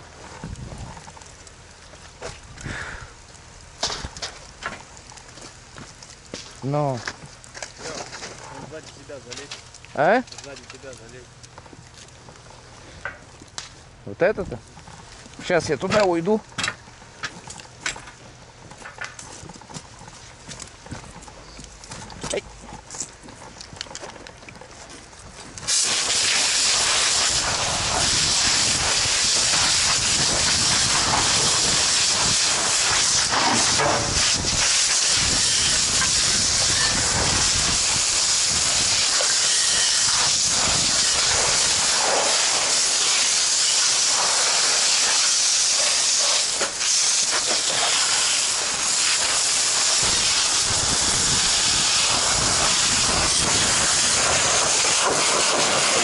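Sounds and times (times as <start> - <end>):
water jet spraying with steam hiss: 25.6 - 56.0.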